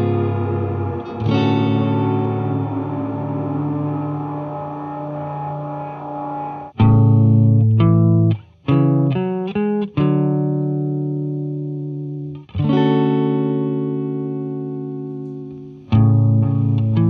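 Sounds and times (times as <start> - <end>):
electric guitar chords: 0.0 - 17.0.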